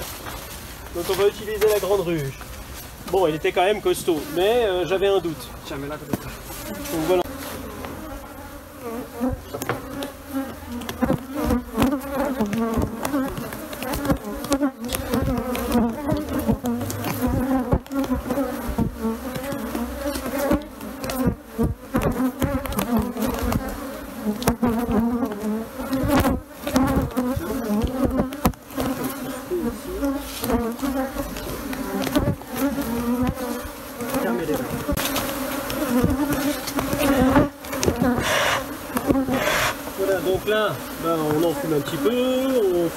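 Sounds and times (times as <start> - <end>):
bees buzzing densely: 0.0 - 42.9.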